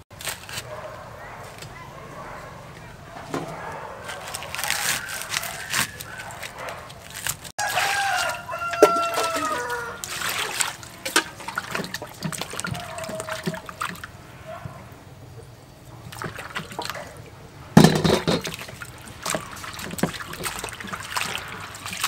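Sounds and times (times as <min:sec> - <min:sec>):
water splashing in steel bowl: 0:04.1 - 0:14.8, 0:15.8 - 0:22.0
rooster crowing: 0:07.6 - 0:10.5.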